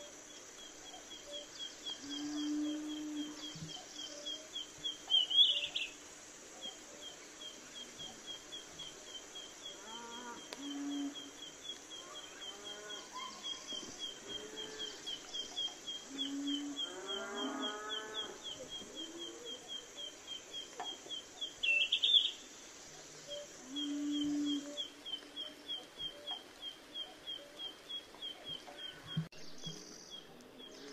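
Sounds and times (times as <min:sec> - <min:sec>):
bird chirping: 0:00.0 - 0:06.0, 0:06.6 - 0:30.9
cow mooing: 0:16.3 - 0:18.4.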